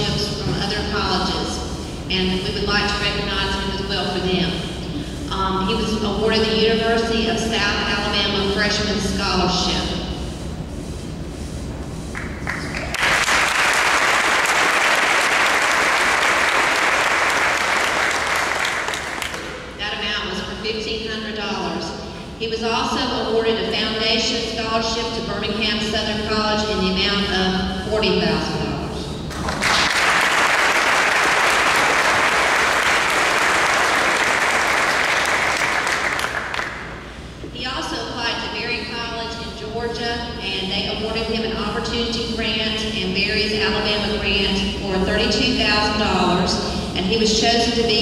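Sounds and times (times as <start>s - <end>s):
audience applauding: 12.2s - 19.6s, 29.3s - 37.0s.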